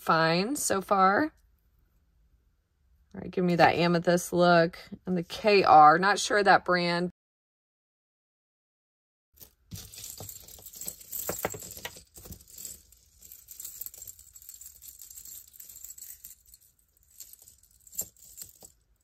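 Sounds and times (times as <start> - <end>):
rustling: 9.4 - 18.9
metal pieces and beads clinking: 9.4 - 19.0.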